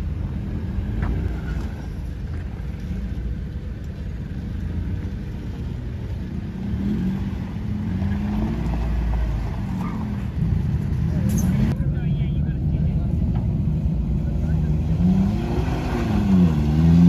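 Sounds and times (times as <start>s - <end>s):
vehicle engine revving: 4.1s - 17.0s.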